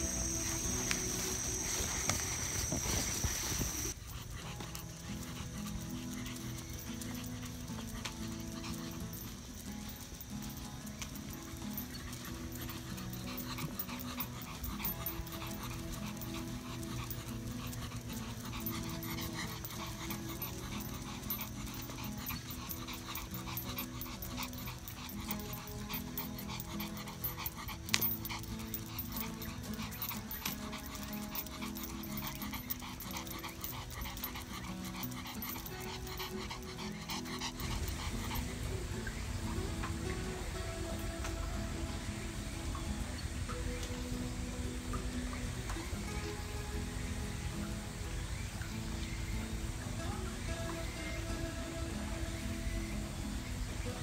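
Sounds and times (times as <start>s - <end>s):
dog panting: 0.0s - 41.4s
background music: 0.0s - 54.0s.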